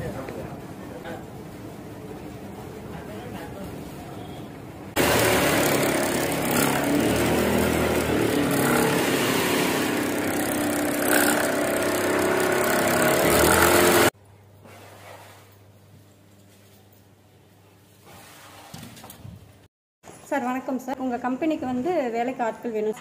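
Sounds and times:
sewing machines whirring: 5.0s - 14.1s.

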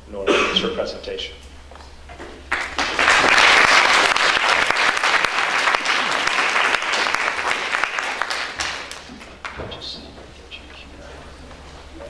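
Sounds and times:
audience applauding: 2.5s - 9.7s.

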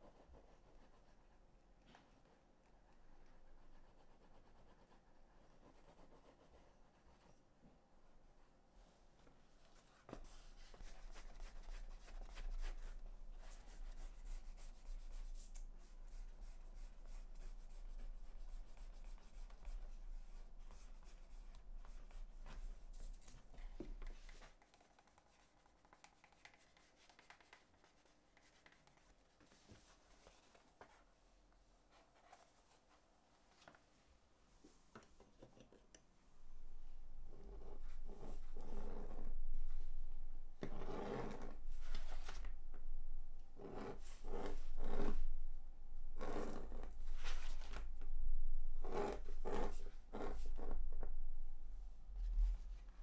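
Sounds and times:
scratching and rubbing on leather: 40.7s - 42.5s, 43.6s - 45.2s, 46.2s - 47.8s, 48.8s - 50.8s.

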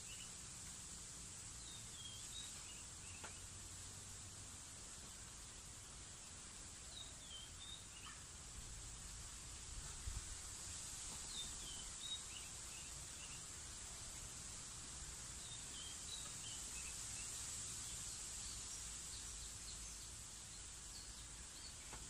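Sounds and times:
bird chirps: 6.9s - 8.2s, 15.4s - 17.4s.

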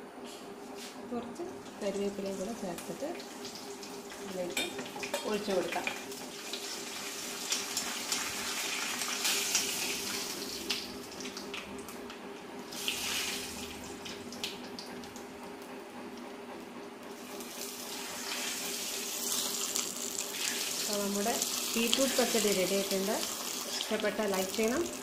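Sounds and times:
spices sizzling in hot oil: 1.9s - 11.3s, 17.2s - 25.0s.

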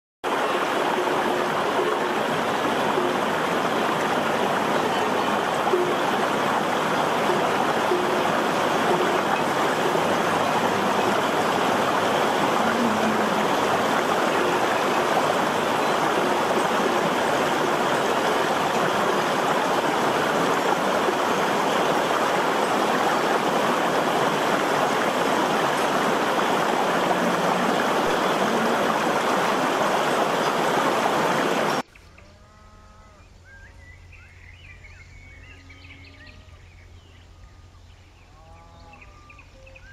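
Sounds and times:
stream rushing over rocks: 0.2s - 31.8s
wavering animal calls: 1.0s - 23.1s.

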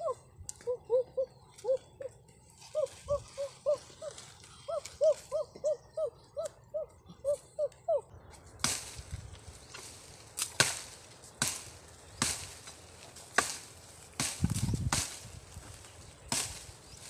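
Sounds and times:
blade chopping wood: 13.3s - 15.2s.

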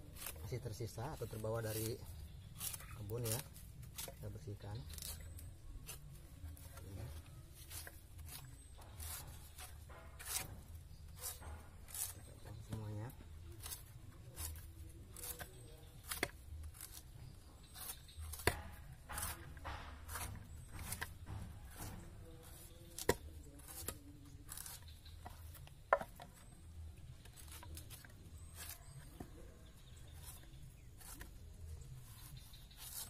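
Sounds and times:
machete scraping and chopping: 0.0s - 33.0s
sharp knocks: 18.3s - 22.2s.

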